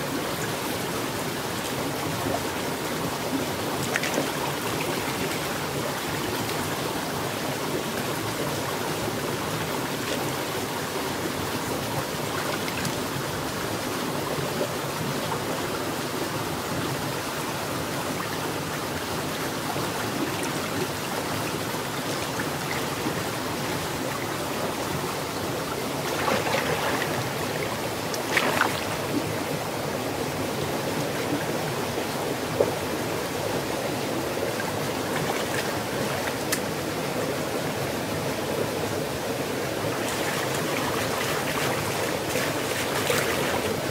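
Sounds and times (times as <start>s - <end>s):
stream running over rocks: 0.0s - 43.9s
hands splashing in water: 28.2s - 28.9s, 40.1s - 43.9s.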